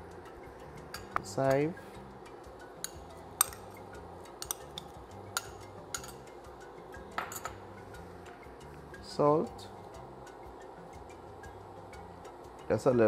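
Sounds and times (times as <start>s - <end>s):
metal spoon clinking on glass: 0.9s - 1.3s, 2.8s - 3.8s, 4.4s - 6.4s, 7.1s - 7.7s.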